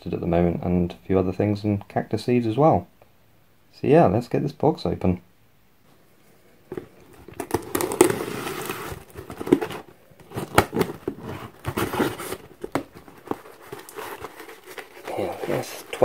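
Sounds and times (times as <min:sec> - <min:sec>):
cardboard flaps rustling: 0:06.7 - 0:16.0.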